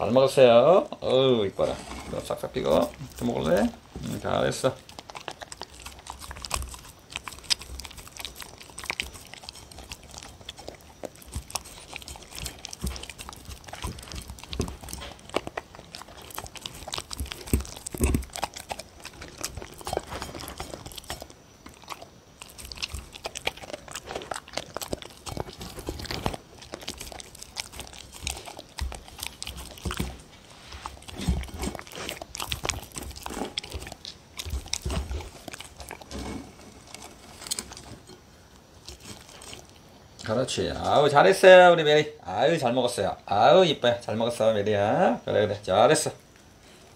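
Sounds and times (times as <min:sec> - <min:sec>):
dog chewing and licking: 0:02.1 - 0:41.1
teeth clicking on plate: 0:04.6 - 0:36.2.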